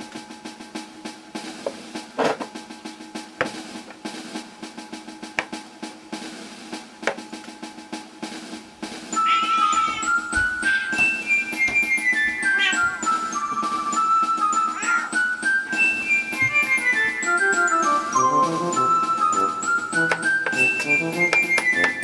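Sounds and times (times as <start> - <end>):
snare drum pattern: 0.0 - 22.0
held chord: 11.1 - 22.0.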